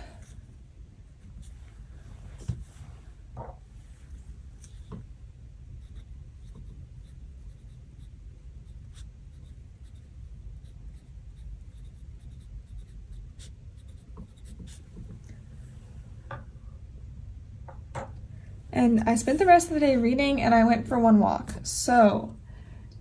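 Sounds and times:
low room hum: 0.0 - 23.0
pen scratching on paper: 5.8 - 15.1.

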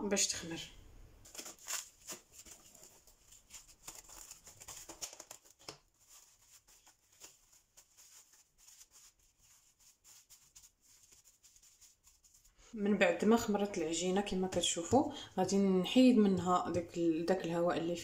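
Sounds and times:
cling film crinkling: 1.2 - 12.5.

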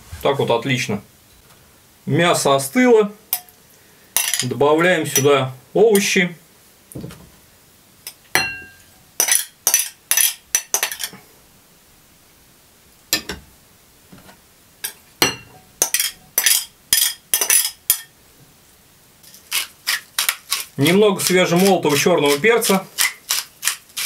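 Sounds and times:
spoon clinking on glass bowls: 4.2 - 4.5, 8.1 - 11.2, 14.8 - 18.1
glass ringing: 8.3 - 9.0, 15.2 - 18.1.

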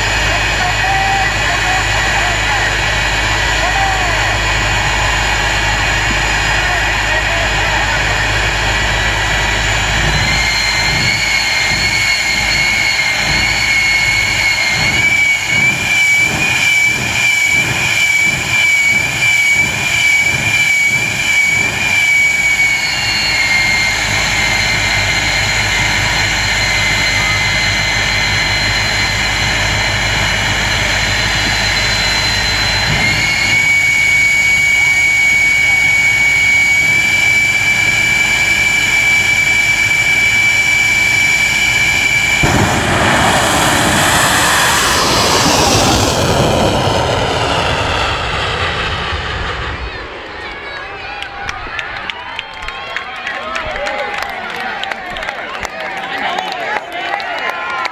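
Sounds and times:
jet engine whine: 0.0 - 57.9
afterburner flame bursts: 36.1 - 49.6.

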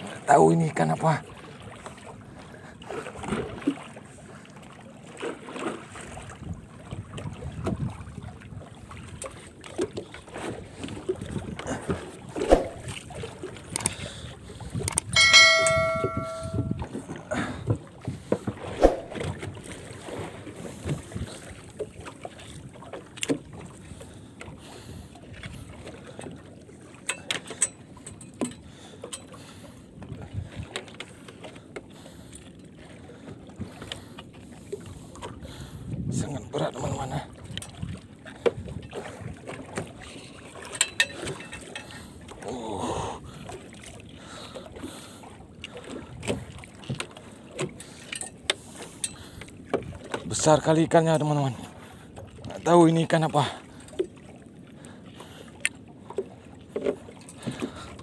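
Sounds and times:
knocks of fishing line hauling: 12.4 - 13.0, 17.7 - 19.5
ringing metal clang: 15.2 - 16.9.

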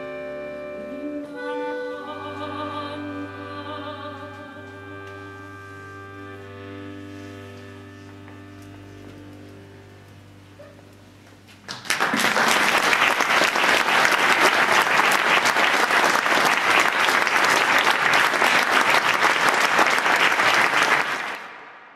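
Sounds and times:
accordion low chord: 0.0 - 11.2
audience applause: 11.6 - 21.9.

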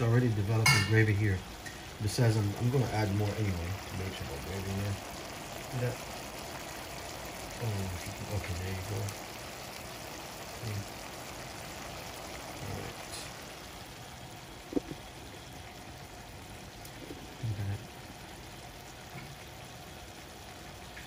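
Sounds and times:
chicken stewing with bubbling hiss: 0.0 - 21.0
soft low thuds: 14.7 - 15.0.

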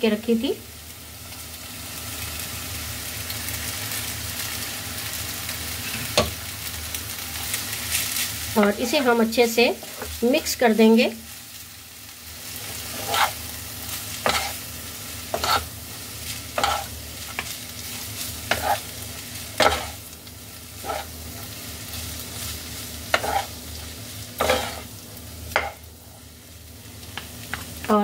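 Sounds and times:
faint frying sizzle: 0.0 - 28.0
spatula scraping a pan: 12.4 - 20.0, 20.8 - 21.5, 22.3 - 24.9, 25.6 - 26.3.

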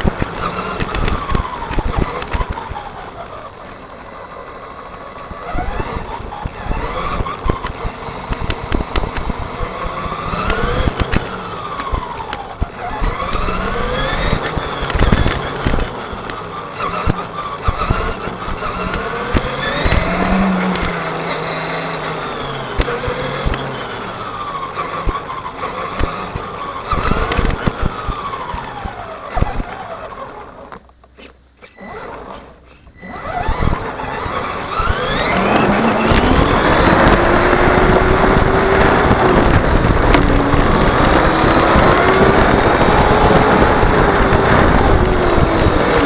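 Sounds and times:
sharp clicks and rattles: 0.0 - 4.1, 4.8 - 21.4, 22.4 - 23.8, 25.9 - 46.0
electric motor and gear whine: 0.0 - 46.0
tyre noise on asphalt: 0.0 - 46.0.

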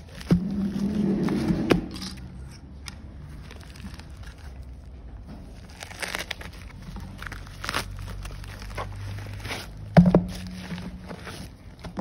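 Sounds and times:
plastic bag crackling: 2.9 - 12.0
plastic mailer bag crinkling: 3.2 - 11.9.

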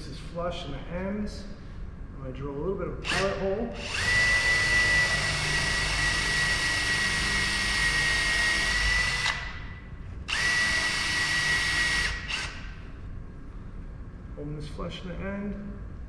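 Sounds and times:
cordless drill boring into wood: 3.0 - 9.4, 10.3 - 12.6.

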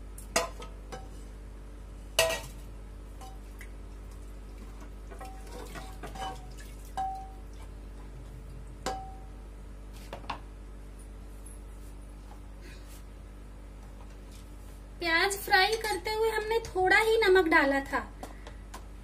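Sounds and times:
spoon clinking on metal pot: 7.0 - 7.4.

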